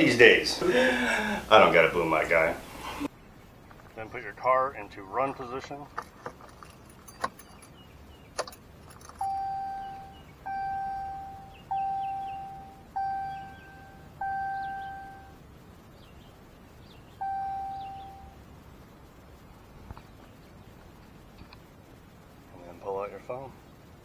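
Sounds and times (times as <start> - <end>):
warning chime: 9.2 - 15.4, 17.2 - 18.4.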